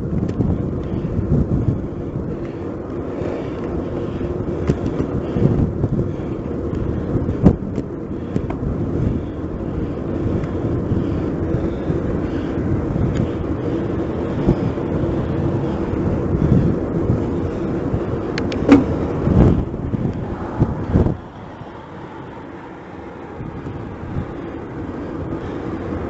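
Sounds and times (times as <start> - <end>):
bicycle tyre rumble: 0.0 - 26.0
wind rush: 0.0 - 26.0
bike clicks and knocks from bumps: 4.6 - 5.6, 7.5 - 8.7, 18.3 - 19.0.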